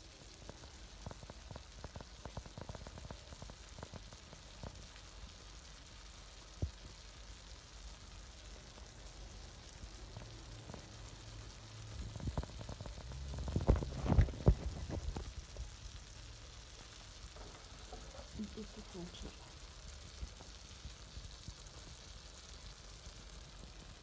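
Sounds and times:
food sizzling in a pan: 0.0s - 24.0s
pops and knocks: 12.0s - 15.8s.

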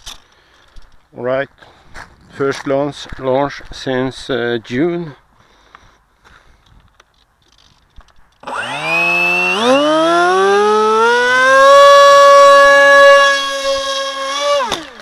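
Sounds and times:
electric motor and propeller whine: 8.4s - 15.0s.

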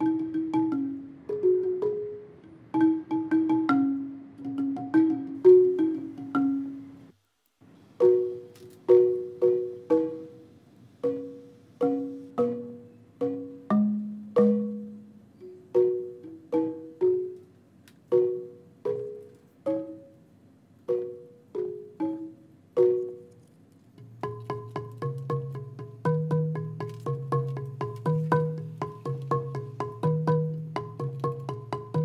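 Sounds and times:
plucked string melody: 0.0s - 7.1s, 8.0s - 20.2s, 20.9s - 32.0s.

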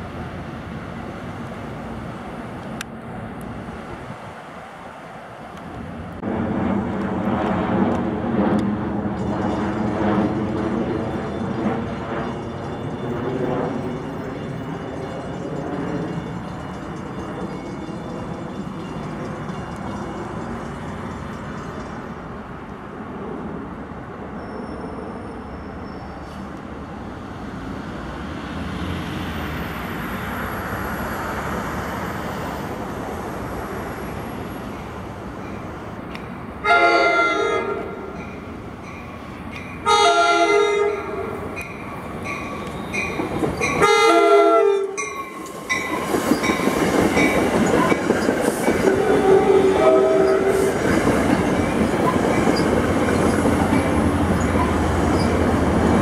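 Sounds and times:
train rumbling: 0.0s - 56.0s
train wheels rushing on rail: 0.0s - 56.0s
train horn blasts: 36.6s - 38.2s, 39.8s - 41.5s, 43.8s - 45.1s, 48.9s - 50.8s.

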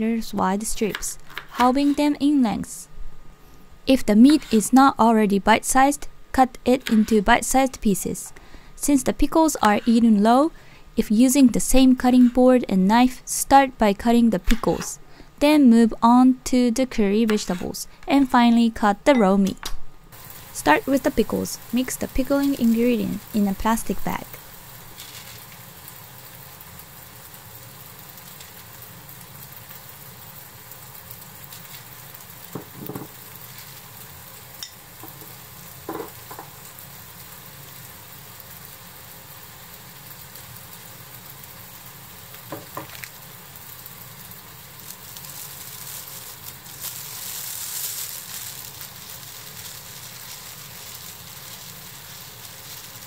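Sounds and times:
steady low hiss: 0.0s - 53.0s
plastic bag rustling: 44.8s - 53.0s.

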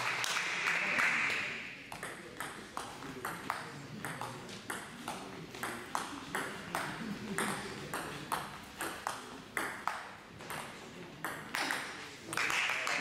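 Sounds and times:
applause: 0.0s - 1.8s, 12.4s - 13.0s.

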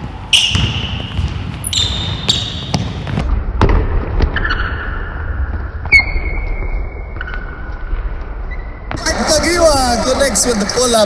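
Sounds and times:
sneakers squeaking on court: 0.1s - 3.3s, 5.5s - 9.0s
basketball bouncing on wooden floor: 0.5s - 4.3s.

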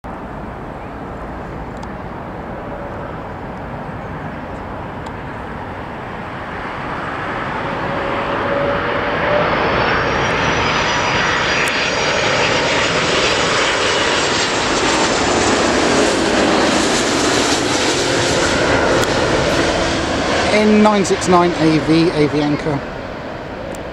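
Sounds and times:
jet airliner engines rumbling: 0.0s - 23.9s
high fan whine: 0.1s - 23.9s.

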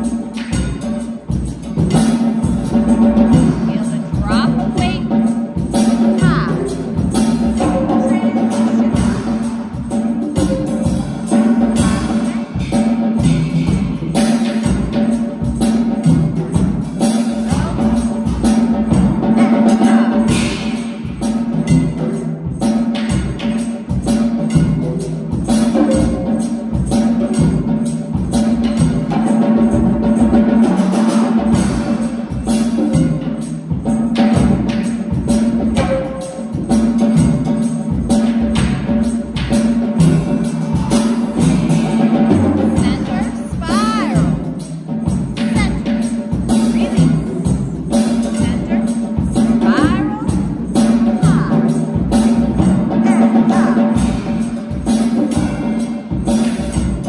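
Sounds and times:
percussion steady beat: 0.0s - 57.0s.

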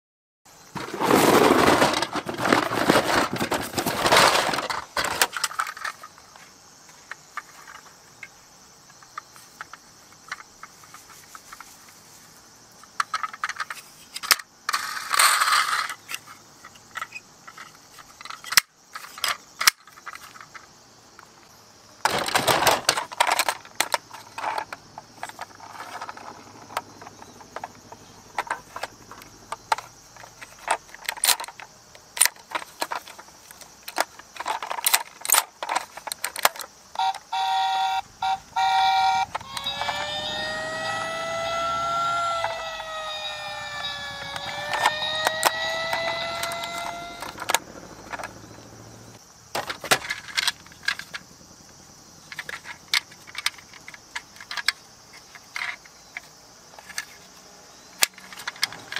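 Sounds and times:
plastic toys clicking and rattling: 0.8s - 6.2s, 13.0s - 20.7s, 22.0s - 37.2s, 39.1s - 48.4s, 49.6s - 51.2s, 52.3s - 57.2s, 58.0s - 58.9s
toy electronic tone: 37.0s - 48.3s.

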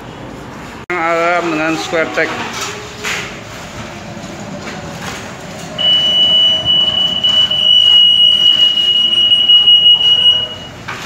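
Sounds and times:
high-pitched alarm tone: 5.8s - 10.8s.

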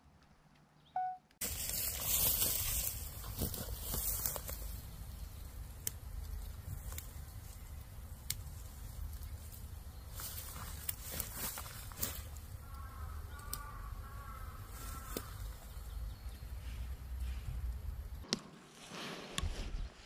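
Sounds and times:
short beep: 1.0s - 1.3s
rustling through dry leaves: 1.4s - 16.0s
twigs snapping: 1.5s - 15.8s.

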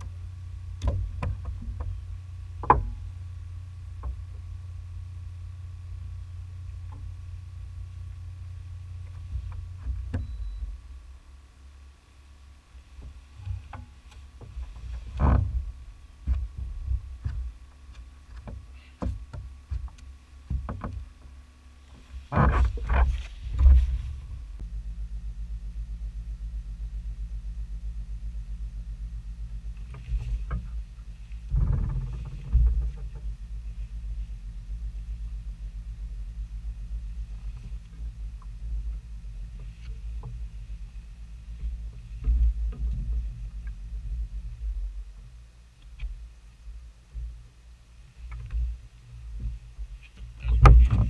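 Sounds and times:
boat motor humming: 0.0s - 51.0s
gear knocking on kayak deck: 0.8s - 3.1s, 13.0s - 21.3s.

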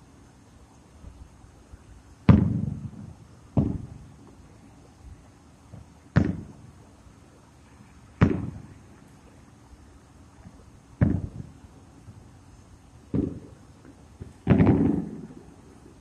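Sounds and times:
fireworks bursting with booms: 2.2s - 7.0s, 8.1s - 8.9s, 10.4s - 12.3s, 13.0s - 16.0s.

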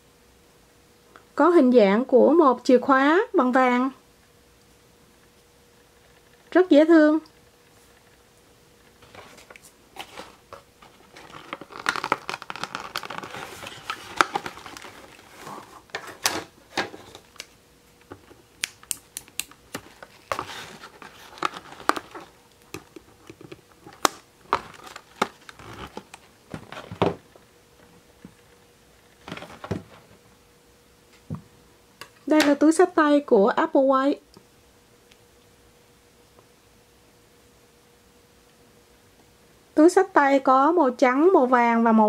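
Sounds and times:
packaging crinkling: 9.0s - 17.6s, 18.3s - 27.2s.

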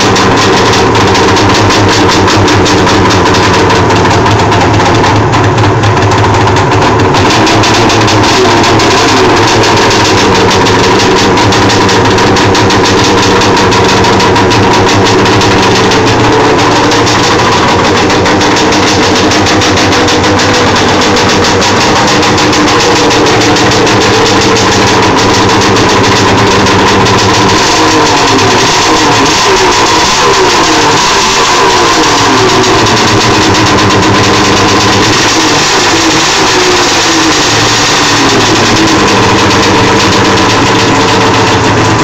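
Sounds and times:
snowmobile engine idling: 0.0s - 42.0s.

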